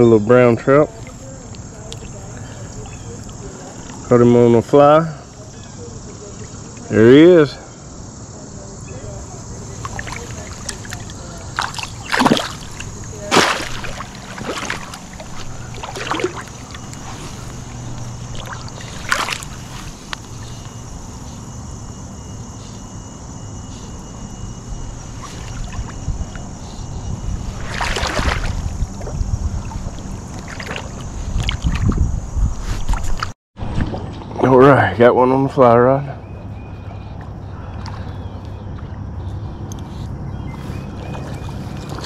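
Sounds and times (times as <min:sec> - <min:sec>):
river water splashing: 0:08.6 - 0:21.4, 0:25.0 - 0:26.6, 0:27.2 - 0:32.0, 0:36.9 - 0:39.1, 0:40.3 - 0:42.0.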